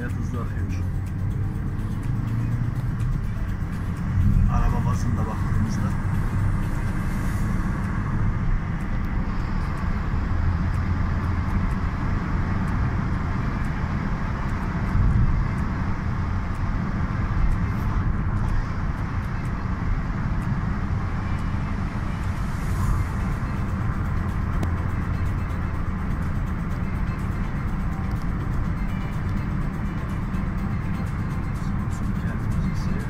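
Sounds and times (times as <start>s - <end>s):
car engine and tyre rumble: 0.0s - 33.0s.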